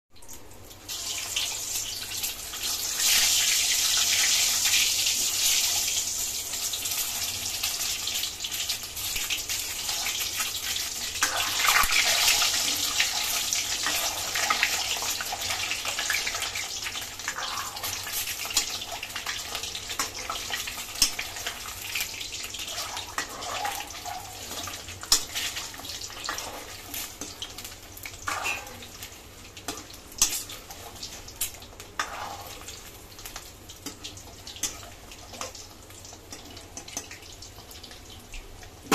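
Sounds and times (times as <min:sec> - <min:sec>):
eggs sizzling in hot oil: 0:00.2 - 0:38.9
metal ladle scraping pan: 0:22.6 - 0:27.3, 0:28.3 - 0:28.8, 0:32.0 - 0:32.7.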